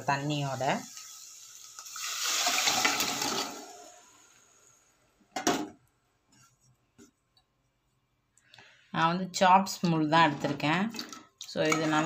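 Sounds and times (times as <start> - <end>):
liquid splashing and hissing in pot: 0.1 - 5.0.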